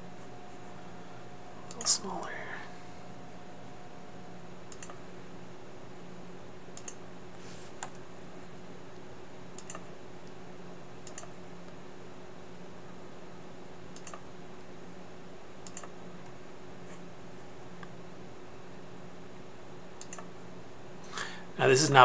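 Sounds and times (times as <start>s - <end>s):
faint low hum: 0.0s - 22.0s
computer mouse clicks: 4.7s - 5.0s, 6.7s - 7.0s, 9.5s - 10.4s, 11.0s - 11.4s, 13.9s - 14.2s, 15.6s - 16.4s, 20.0s - 20.3s.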